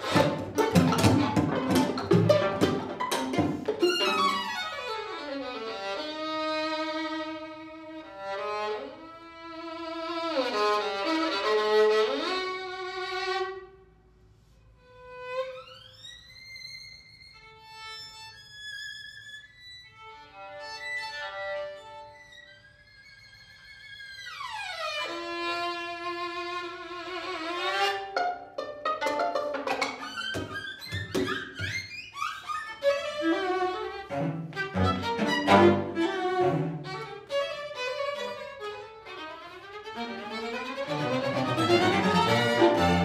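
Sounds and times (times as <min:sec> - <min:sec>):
violin high notes: 0:00.0 - 0:05.3, 0:28.0 - 0:37.2, 0:40.1 - 0:43.0
bowed strings sliding glissandi: 0:40.9 - 0:43.0
string quartet chord stabs: 0:41.1 - 0:43.0.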